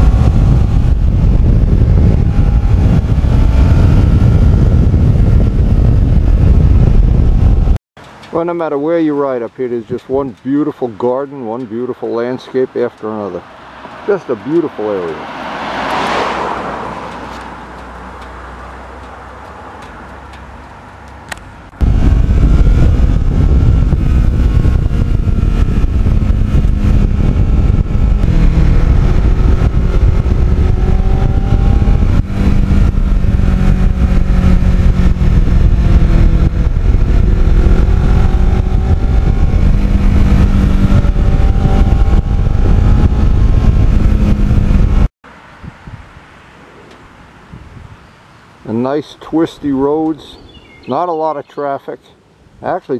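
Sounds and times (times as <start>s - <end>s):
motorcycle engine revving: 0.0s - 7.8s, 21.3s - 45.2s
wind rush on microphone: 0.0s - 7.8s, 21.7s - 46.2s, 47.4s - 48.0s.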